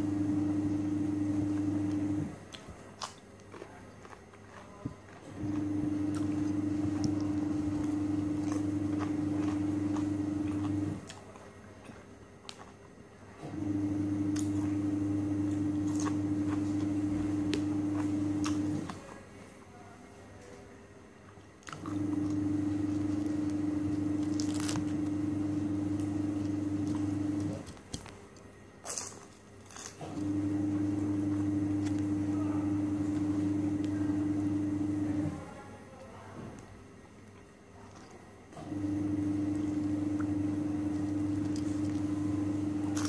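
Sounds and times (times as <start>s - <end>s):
steady machine hum: 0.0s - 2.6s, 5.2s - 11.2s, 13.1s - 20.0s, 21.0s - 28.8s, 30.0s - 35.8s, 38.6s - 43.0s.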